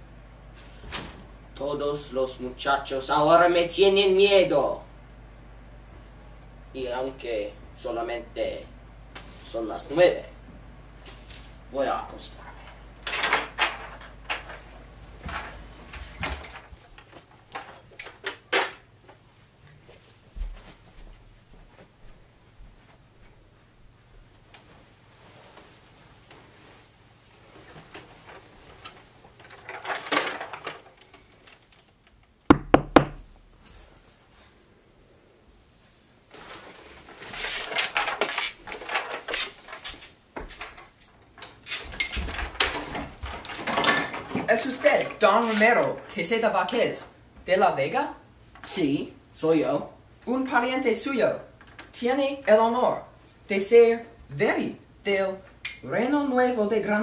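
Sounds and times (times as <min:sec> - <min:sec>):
footsteps: 0:14.5 - 0:17.3, 0:19.0 - 0:28.8
dull thump: 0:32.5 - 0:33.2.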